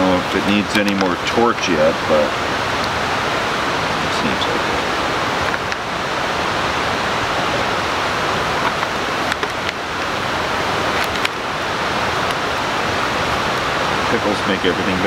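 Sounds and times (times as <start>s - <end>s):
creek water flowing: 0.0s - 15.0s.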